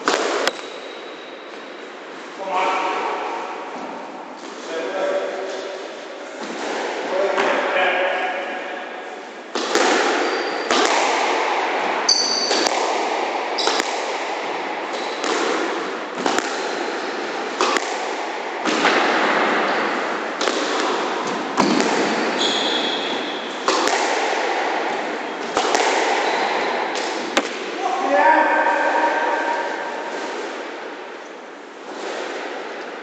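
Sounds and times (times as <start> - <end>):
squash ball hitting rackets and walls: 0.0 - 1.7, 9.3 - 27.8, 28.5 - 33.0
shoes squeaking on wooden floor: 21.6 - 23.5.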